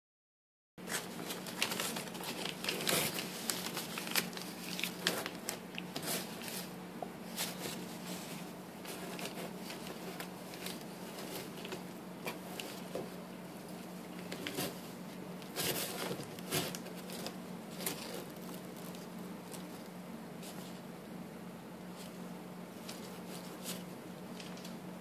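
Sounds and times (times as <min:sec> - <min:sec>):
paper crinkling and tearing: 0:00.8 - 0:08.2, 0:15.4 - 0:20.6.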